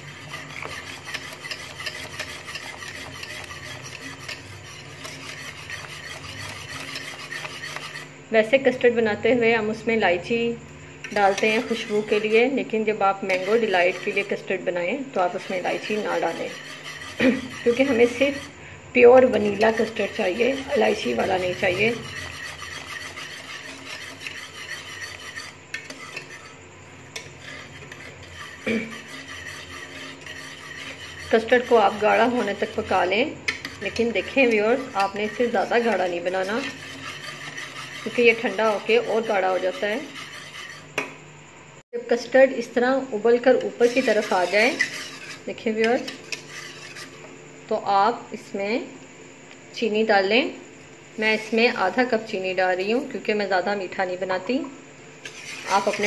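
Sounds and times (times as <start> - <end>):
whisk beating in steel pot: 0.0 - 8.1, 11.1 - 14.6, 15.2 - 18.5, 19.1 - 26.5, 27.1 - 41.0, 43.7 - 47.3, 55.2 - 56.0.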